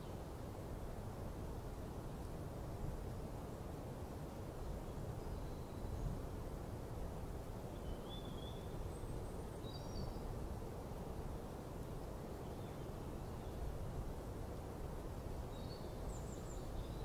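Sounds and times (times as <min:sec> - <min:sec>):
faint bird chirps: 0:05.2 - 0:06.2, 0:07.7 - 0:10.3, 0:15.5 - 0:17.0.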